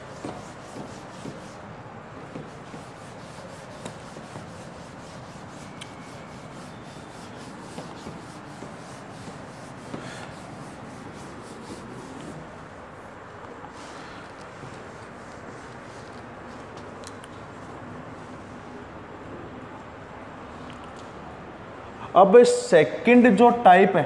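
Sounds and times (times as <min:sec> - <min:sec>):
eraser rubbing on whiteboard: 0:00.0 - 0:12.8.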